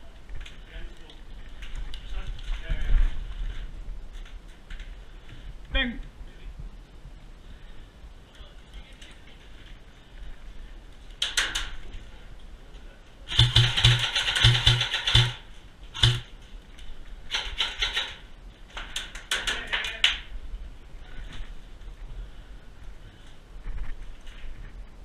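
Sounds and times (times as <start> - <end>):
airsoft gun shots: 13.3 - 15.4, 16.0 - 16.3.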